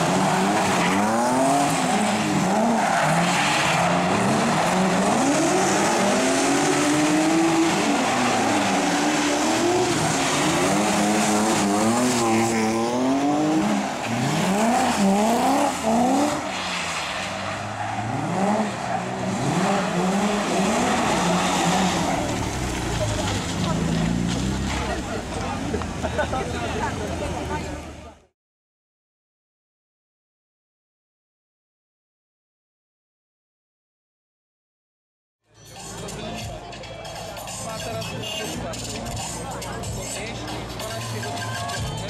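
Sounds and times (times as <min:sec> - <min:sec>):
tyres squealing on asphalt: 0:00.0 - 0:27.6
car engines revving: 0:00.0 - 0:28.2.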